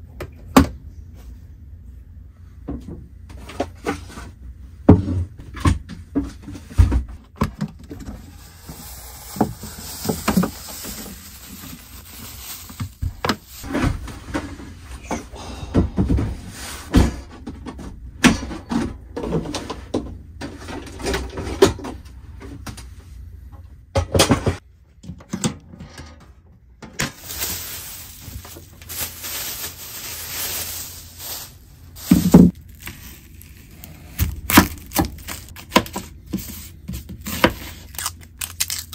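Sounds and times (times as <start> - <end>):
gas hissing: 8.2 - 12.0.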